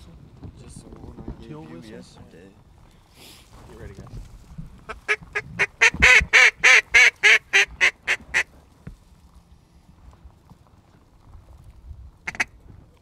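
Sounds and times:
duck call quacks: 4.9 - 8.5, 12.3 - 12.5.

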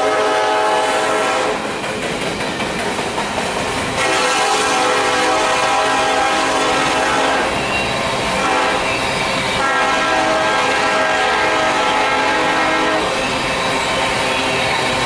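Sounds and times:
locomotive air horn blasts: 0.0 - 1.6, 4.0 - 7.6, 8.4 - 8.9, 9.6 - 13.2
train cars rumbling on rails: 0.0 - 15.0.

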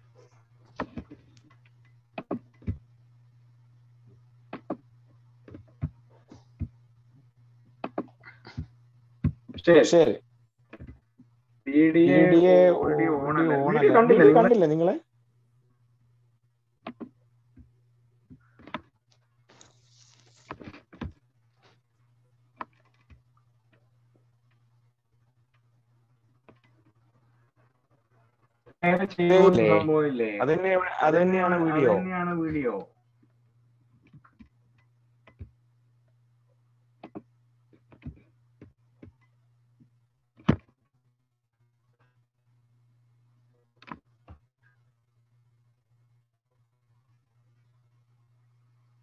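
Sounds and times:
steady low hum: 0.0 - 18.6.

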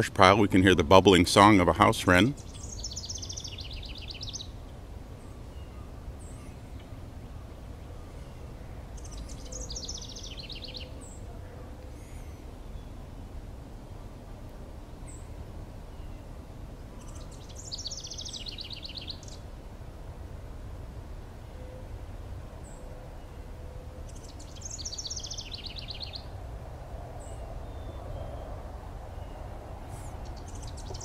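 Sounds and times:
wren singing trilled song: 1.4 - 6.4, 8.1 - 11.3, 17.0 - 19.5, 24.1 - 26.4, 30.2 - 31.0.

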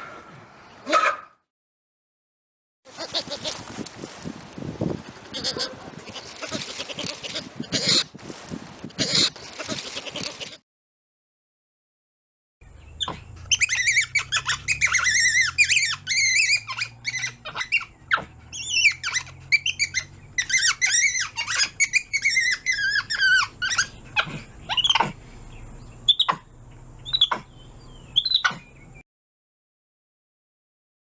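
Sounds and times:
monkey squealing and chirping: 5.4 - 8.1, 9.0 - 10.6, 12.9 - 25.2, 26.0 - 27.5, 28.1 - 28.8.

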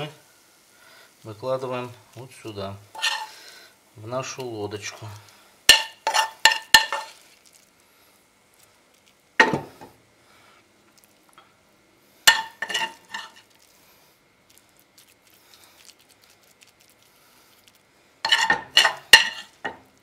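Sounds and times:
metal spoon clinking on pan: 5.7 - 7.1, 18.3 - 19.8.

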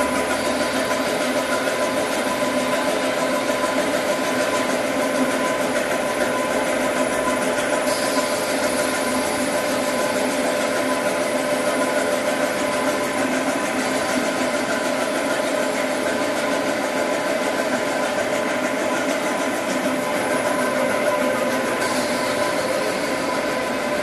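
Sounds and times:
printing machine drone: 0.0 - 24.0
steady hum tones: 0.0 - 24.0.

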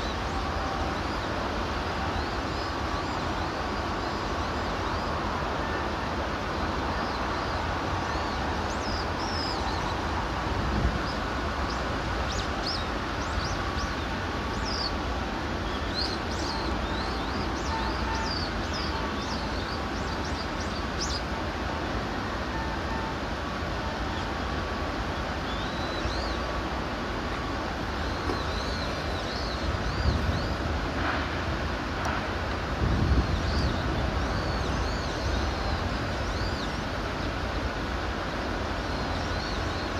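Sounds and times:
steady rushing outdoor noise: 0.0 - 39.9
small birds chirping: 15.6 - 21.3, 28.0 - 30.6.

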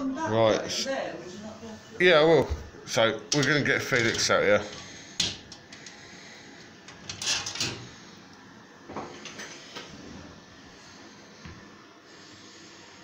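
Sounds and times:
glass panel scraping along track: 6.9 - 7.9.

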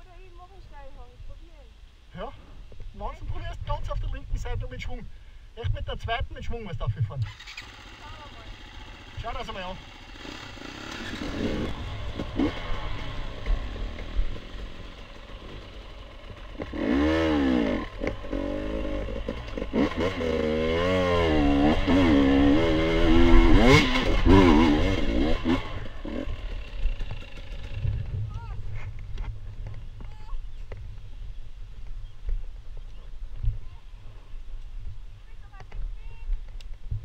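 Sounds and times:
motorcycle engine revving: 7.2 - 32.5.

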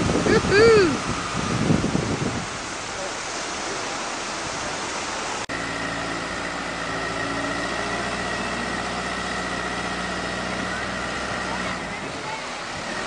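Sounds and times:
surf: 0.0 - 13.0
wind: 0.0 - 13.0
diesel engine running: 5.2 - 13.0.

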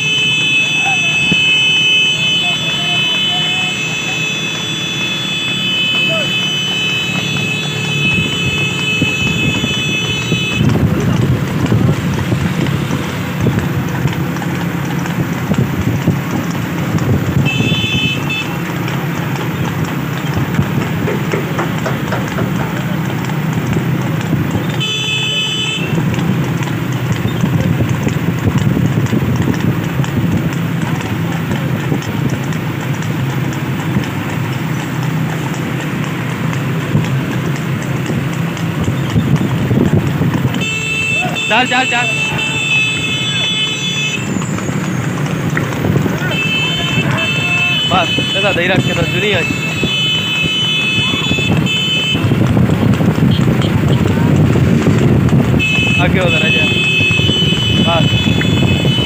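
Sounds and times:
high-pitched horn: 0.0 - 10.8, 40.6 - 44.4, 46.2 - 52.3
horse hooves clip-clopping on road: 0.0 - 59.0
vehicle engine hum: 0.0 - 59.0.

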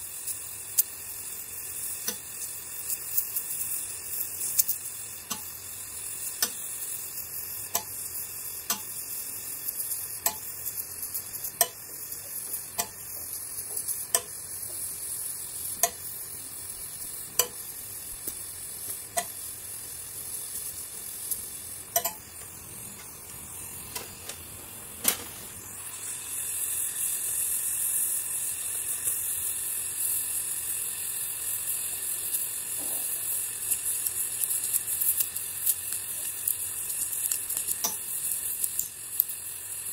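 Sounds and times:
gas torch flame hissing: 0.0 - 39.9
sharp pops: 4.4 - 25.8, 37.2 - 39.3.

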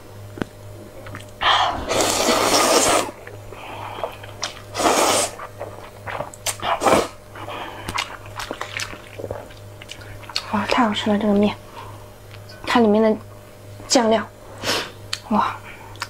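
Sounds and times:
slurping noodles: 1.8 - 3.2, 4.0 - 7.2
lip smacks: 5.3 - 7.0, 7.8 - 10.8, 15.1 - 15.3
chewing: 5.4 - 6.8, 7.4 - 11.6.

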